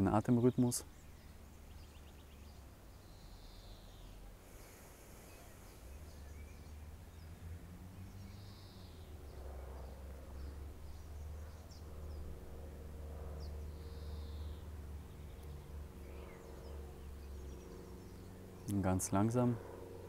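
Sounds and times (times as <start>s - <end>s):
steady low rumble: 0.0s - 20.0s
faint high bird chirps: 0.2s - 12.3s, 13.4s - 18.7s
person breathing slowly: 4.4s - 5.9s.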